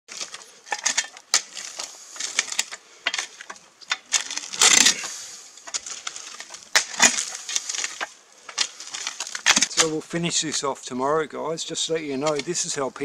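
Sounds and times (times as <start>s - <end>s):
small stones rattling: 0.1s - 9.9s
spade scraping gravelly soil: 0.1s - 10.6s, 11.8s - 13.0s.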